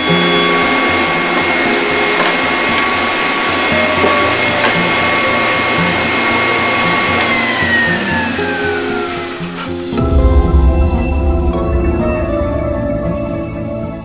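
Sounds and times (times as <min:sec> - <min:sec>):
table saw motor whine: 0:00.0 - 0:10.0
rushing noise: 0:00.0 - 0:14.0.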